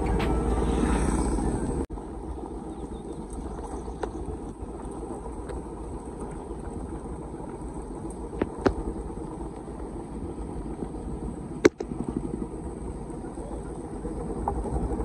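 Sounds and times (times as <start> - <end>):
motorcycle engine rumbling: 0.0 - 5.2.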